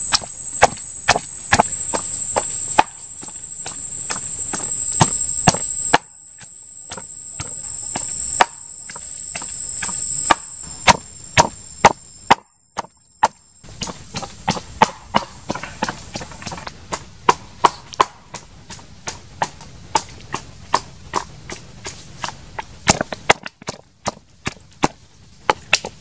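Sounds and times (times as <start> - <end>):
high steady whine: 0.0 - 23.2
wooden pestle pounding in mortar: 2.8 - 3.3, 10.3 - 26.0.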